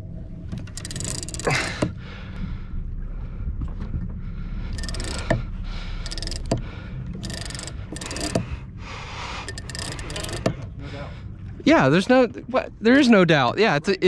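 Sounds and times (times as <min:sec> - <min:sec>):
low rumble: 0:00.0 - 0:14.0
fishing reel clicking whir: 0:00.6 - 0:01.9, 0:04.7 - 0:06.6, 0:07.2 - 0:08.6, 0:09.4 - 0:10.6.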